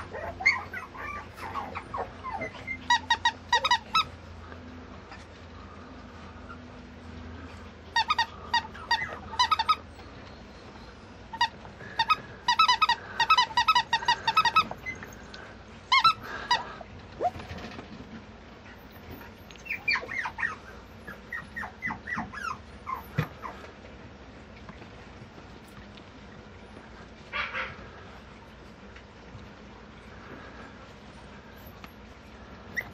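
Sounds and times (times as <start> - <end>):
rubber squeaky toy squeaking: 2.3 - 4.1, 8.0 - 9.8, 11.3 - 15.0.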